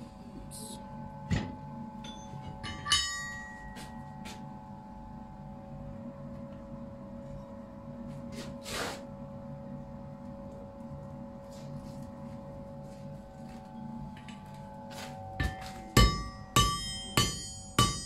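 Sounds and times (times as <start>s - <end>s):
steady hum: 0.0s - 18.0s
short scrape: 8.3s - 9.1s.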